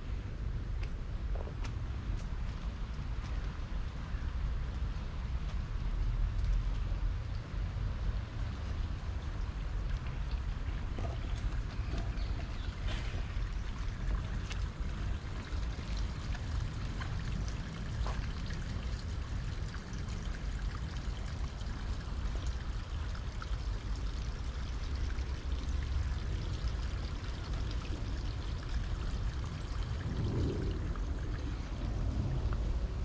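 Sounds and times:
wind buffeting microphone: 28.8s - 33.0s.

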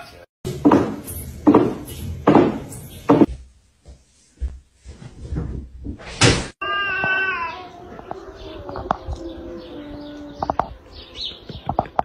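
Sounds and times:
sharp knocks: 0.5s - 3.3s.

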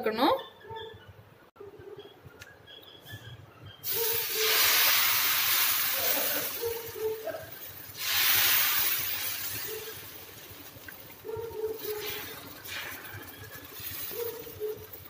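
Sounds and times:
batter sizzling on hot griddle: 3.8s - 15.0s.

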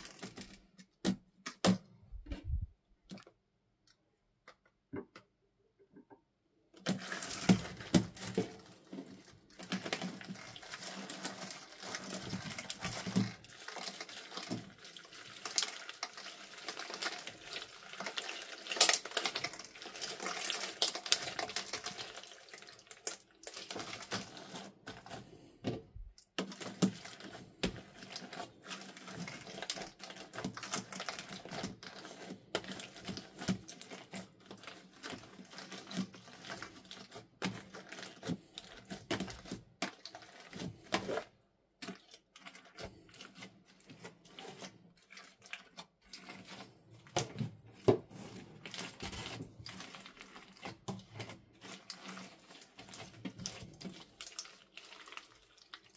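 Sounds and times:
hands squelching slime: 6.9s - 55.9s
crackling clicks of plastic pieces: 15.4s - 25.2s, 26.1s - 55.9s.

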